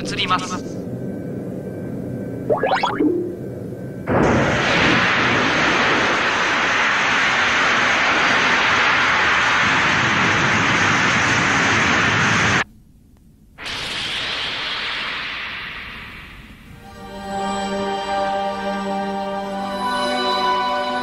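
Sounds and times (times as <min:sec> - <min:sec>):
soft rushing with rising whine: 0:02.3 - 0:04.0
loud jet-like rushing noise: 0:04.1 - 0:12.6.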